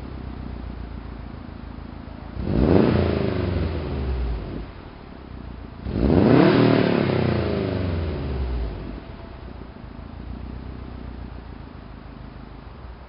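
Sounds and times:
car engine revving: 2.2s - 11.3s.

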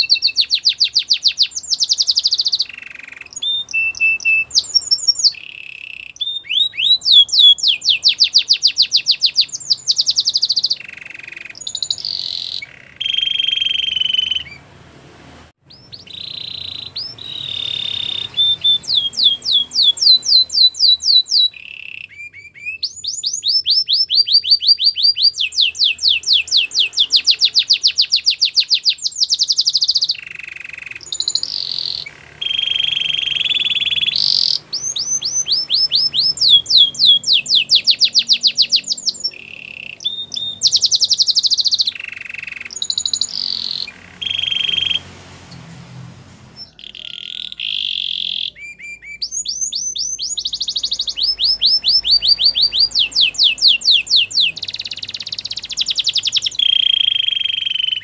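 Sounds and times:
canary singing: 0.0s - 58.0s.

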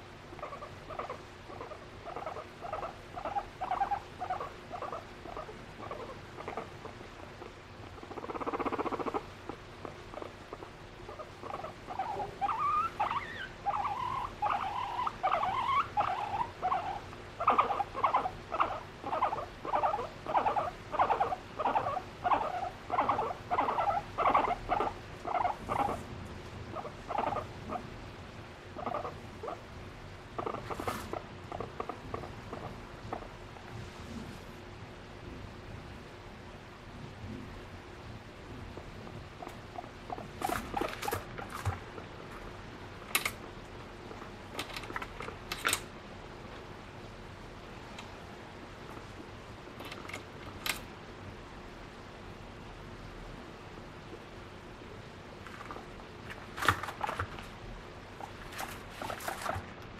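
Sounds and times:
guinea pig squeaking: 0.3s - 26.1s, 26.7s - 27.8s, 28.8s - 29.6s, 30.3s - 33.7s, 39.0s - 42.3s, 58.2s - 59.6s.

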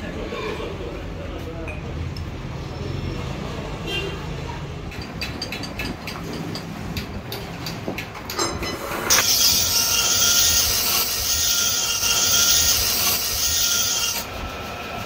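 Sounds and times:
lathe running: 8.8s - 15.0s
file rasping on steel gear: 9.1s - 14.3s.

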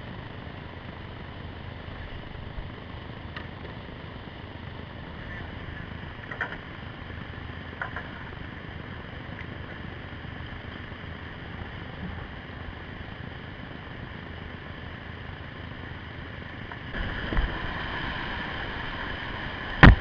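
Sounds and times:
whitewater rushing: 16.9s - 20.0s.

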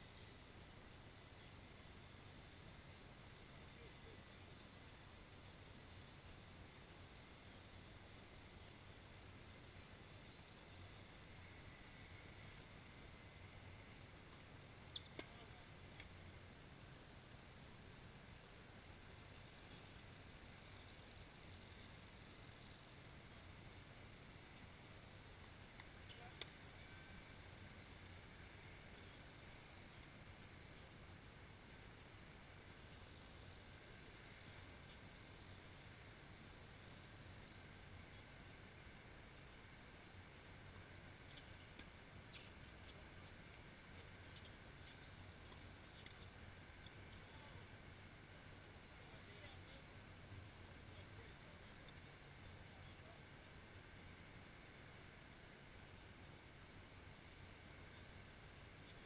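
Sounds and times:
faint high ticks: 0.0s - 31.0s, 31.7s - 53.2s, 53.9s - 59.0s
faint outdoor hiss: 0.0s - 59.0s.

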